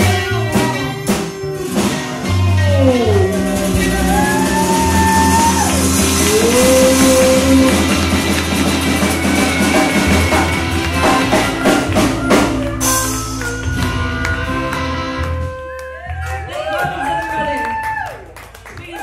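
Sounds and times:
drum hits: 0.0 - 14.3
live rock band playing: 0.0 - 17.7.

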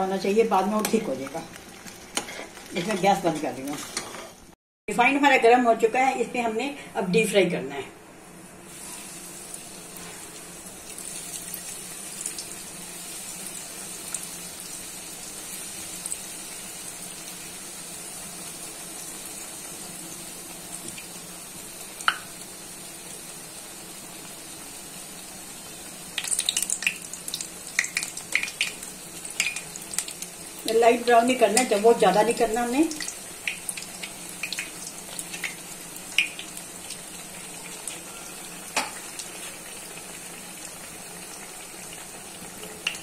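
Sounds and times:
bread sizzling in hot oil: 0.0 - 4.6, 8.4 - 43.0
metal spoon scraping a pan: 2.2 - 4.4.

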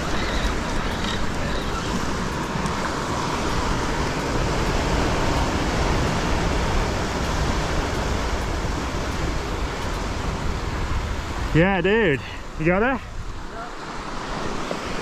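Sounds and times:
wind on microphone: 0.0 - 11.6
waves breaking on rocks: 0.0 - 15.0.

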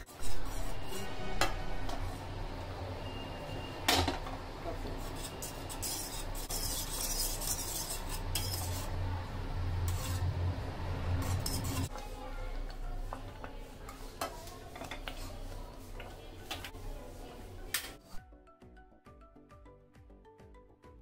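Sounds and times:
whisk scraping a saucepan: 0.0 - 2.3, 4.6 - 9.1, 9.8 - 18.2.

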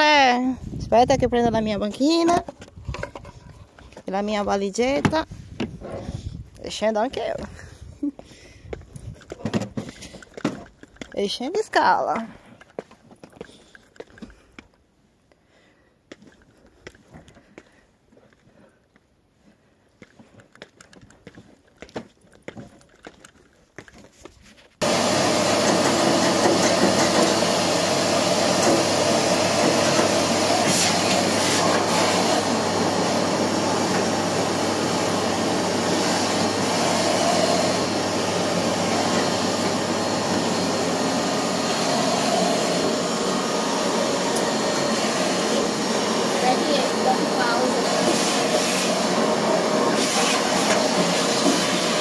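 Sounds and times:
vacuum cleaner running: 24.8 - 52.0.

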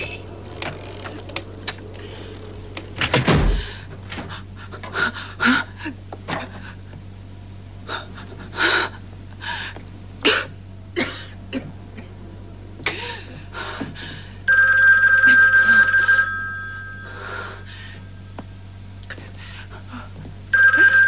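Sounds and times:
woman panting and gasping: 3.5 - 6.8, 7.8 - 9.8, 12.8 - 14.4
telephone bell ringing: 14.5 - 17.2, 20.5 - 21.0.

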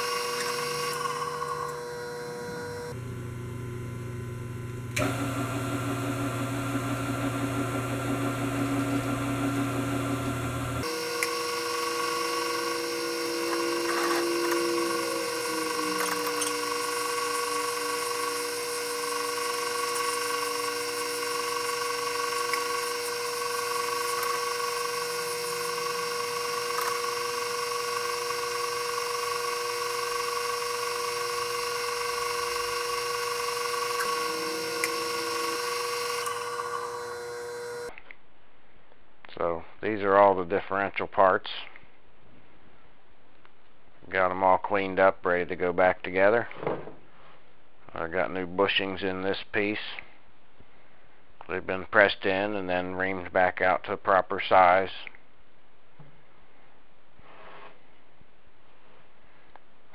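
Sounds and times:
milling machine hum: 0.0 - 37.9.

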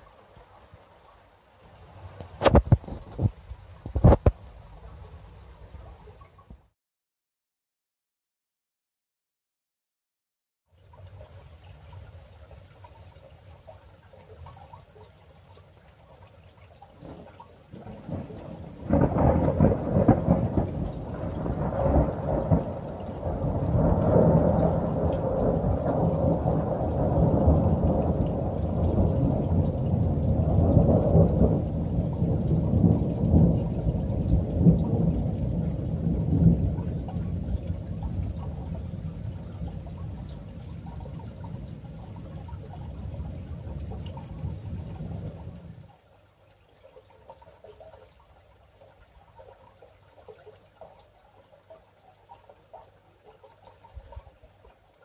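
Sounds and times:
thunder rumbling: 17.0 - 45.8
thunder crack: 17.8 - 42.3.

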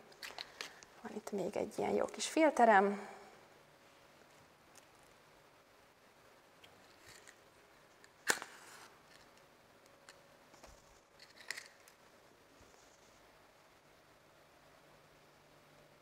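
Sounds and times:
match striking and flaring: 8.0 - 9.2.

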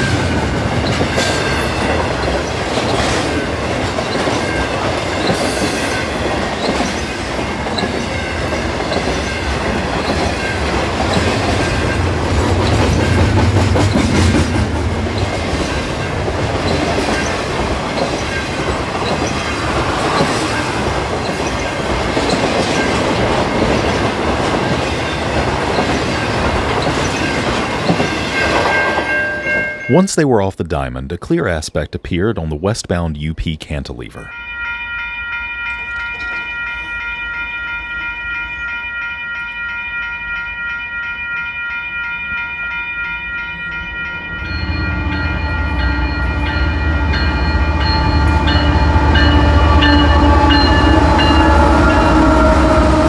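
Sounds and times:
train wheels clacking over rail joints: 0.0 - 29.0.

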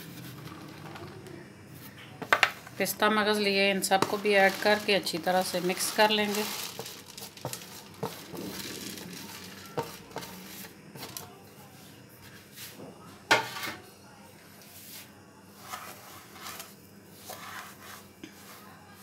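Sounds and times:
spoon stirring mixture: 1.8 - 11.4, 15.6 - 19.0
dried fruit and seeds tipped: 3.8 - 11.3.

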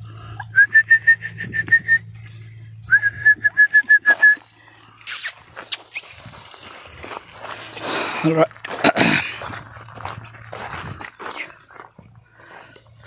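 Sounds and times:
rapid short whistles: 2.9 - 6.1
short sharp noises: 5.0 - 6.2.

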